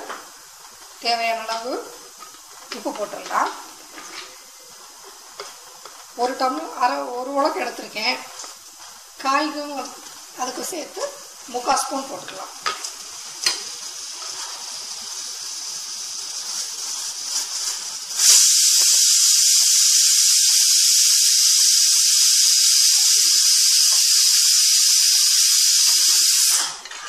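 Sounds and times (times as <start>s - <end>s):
food simmering in a pan: 0.1s - 27.0s
spatula stirring: 0.7s - 18.2s
loud even hiss: 5.8s - 27.0s.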